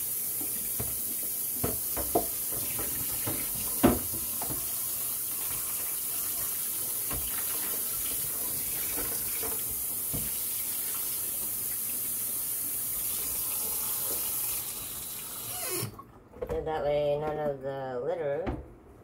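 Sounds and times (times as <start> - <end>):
tap running into steel sink: 1.6 - 4.8, 8.8 - 10.4.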